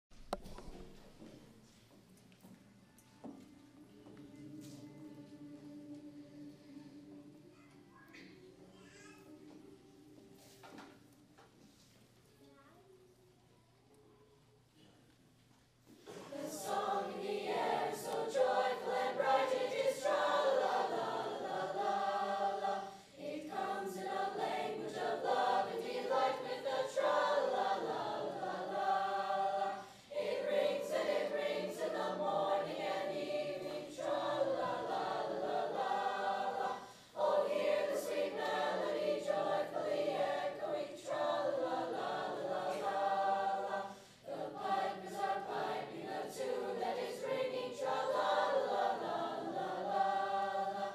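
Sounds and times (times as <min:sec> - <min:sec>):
mixed choir singing: 0:03.2 - 0:08.6, 0:16.0 - 0:50.9.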